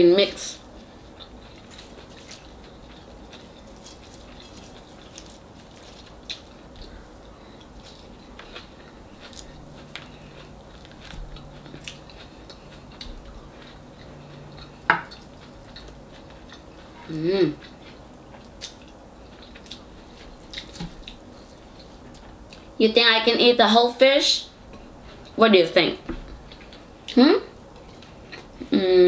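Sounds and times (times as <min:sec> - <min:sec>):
faint low hum: 0:00.0 - 0:29.0
chewing: 0:00.6 - 0:17.0, 0:17.6 - 0:22.7.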